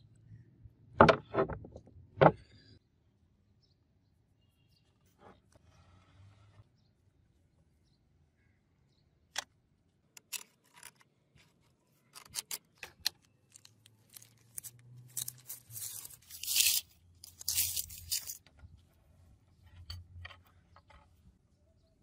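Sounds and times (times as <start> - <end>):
paper crinkling and rustling: 10.4 - 18.5
paper tearing: 14.1 - 18.4.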